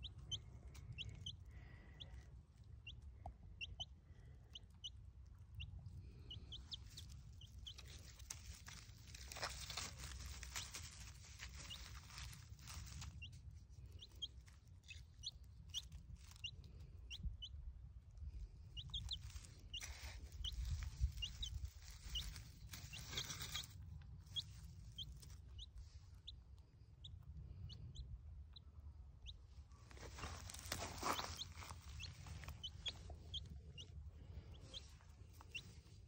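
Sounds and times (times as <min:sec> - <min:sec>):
chick peeping: 0:00.0 - 0:36.0
hand fork rustling in soil: 0:07.7 - 0:13.3, 0:19.1 - 0:23.8, 0:29.9 - 0:33.4.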